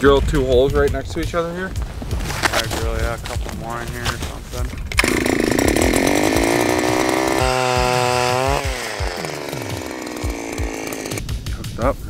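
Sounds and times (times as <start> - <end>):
power ice auger motor: 4.8 - 11.2.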